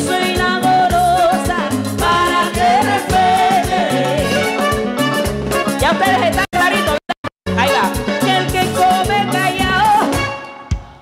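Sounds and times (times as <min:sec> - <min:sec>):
woman singing: 0:00.0 - 0:04.6, 0:05.8 - 0:07.2, 0:08.2 - 0:10.3
electric bass: 0:00.0 - 0:10.4
congas: 0:00.0 - 0:11.0
drum kit: 0:00.0 - 0:11.0.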